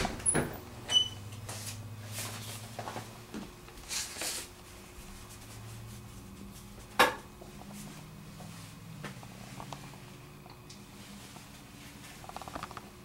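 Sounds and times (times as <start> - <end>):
steady low hum: 0.0 - 13.0
soft brushing sounds: 1.3 - 3.2, 3.8 - 10.2, 10.8 - 12.4.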